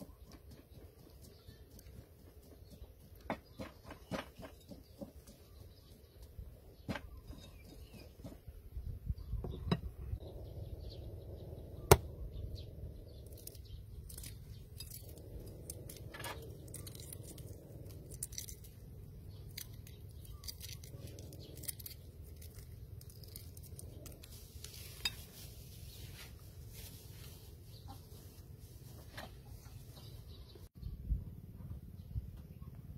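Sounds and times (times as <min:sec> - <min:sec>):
eggshell sharp crack: 0:11.9 - 0:12.2
eggshell crackling: 0:11.9 - 0:25.3.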